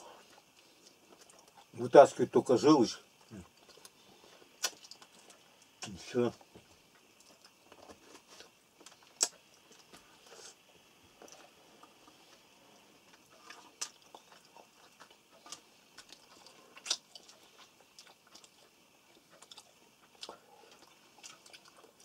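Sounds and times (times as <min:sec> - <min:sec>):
faint chewing: 0:00.0 - 0:01.8, 0:03.0 - 0:22.0.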